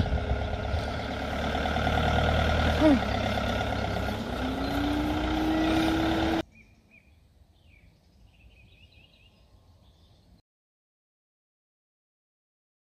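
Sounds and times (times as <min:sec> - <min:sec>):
vehicle engine running: 0:00.0 - 0:06.4
faint bird chirps: 0:06.4 - 0:10.4.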